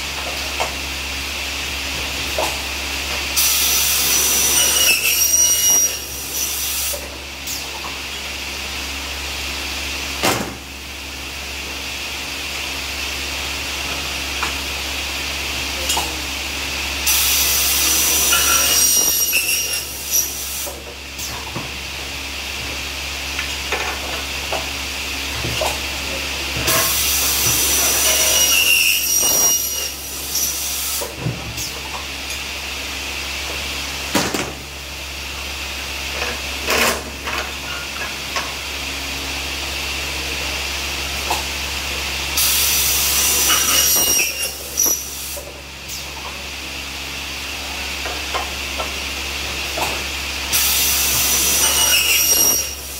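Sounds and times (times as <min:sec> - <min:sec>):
air clamps hissing and clacking: 0:03.4 - 0:07.9, 0:17.0 - 0:21.5, 0:26.6 - 0:32.4, 0:42.4 - 0:46.3, 0:49.8 - 0:52.9
saw blade screeching through metal: 0:03.6 - 0:06.6, 0:17.1 - 0:20.4, 0:27.5 - 0:30.7, 0:43.1 - 0:45.1, 0:51.0 - 0:52.9.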